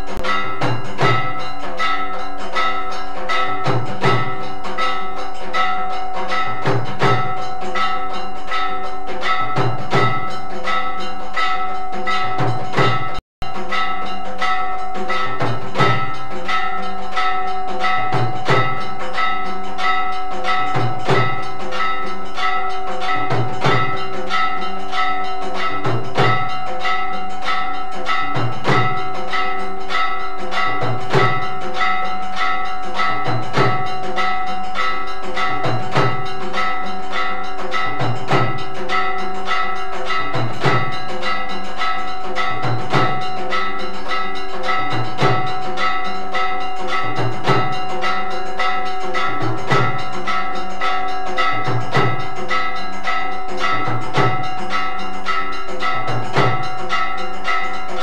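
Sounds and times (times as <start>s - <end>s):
deep drum beat: 0.0s - 2.0s, 2.6s - 5.7s, 6.3s - 8.3s, 9.2s - 11.0s, 12.1s - 19.4s, 20.5s - 22.0s, 22.7s - 24.5s, 28.1s - 29.2s, 30.6s - 31.9s, 33.1s - 34.6s, 35.4s - 39.2s, 40.0s - 41.1s, 42.1s - 43.4s, 44.7s - 47.9s, 48.6s - 50.2s, 51.1s - 52.4s, 53.6s - 54.6s
temple bells ringing: 0.0s - 58.0s.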